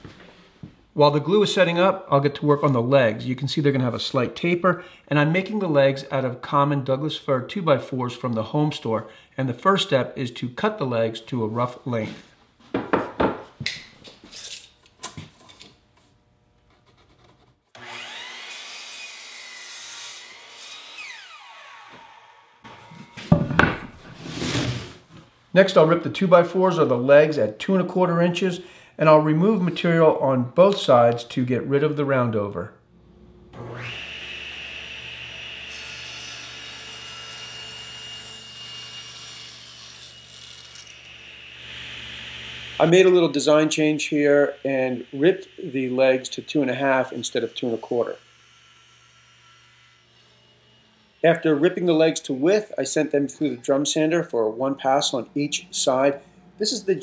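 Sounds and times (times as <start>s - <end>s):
wooden boards knocking: 12.7s - 13.5s, 23.2s - 24.0s
saw blade cutting wood: 16.8s - 24.8s, 33.6s - 52.4s
table saw ripping wood: 17.7s - 25.0s
miter saw motor whining: 17.8s - 18.6s, 21.0s - 23.3s, 33.5s - 35.7s.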